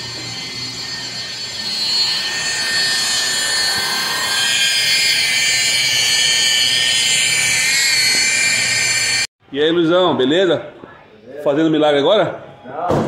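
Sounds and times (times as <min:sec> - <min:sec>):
rotary polisher motor whine: 0:00.0 - 0:09.3.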